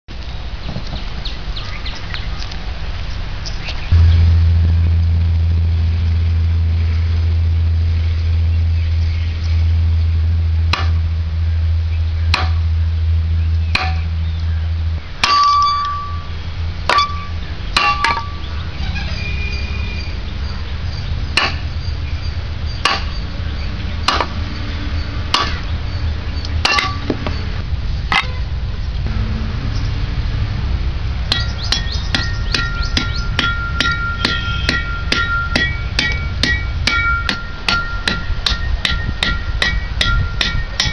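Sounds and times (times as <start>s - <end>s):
steady low hum: 0.1s - 18.9s, 20.0s - 40.9s
stick striking machete blade: 10.7s - 11.1s, 12.3s - 12.7s, 13.7s - 14.2s, 15.2s - 16.2s, 16.9s - 18.4s, 21.4s - 21.6s, 22.8s - 23.2s, 24.1s - 24.4s, 25.3s - 25.7s, 26.6s - 27.2s, 31.3s - 40.9s.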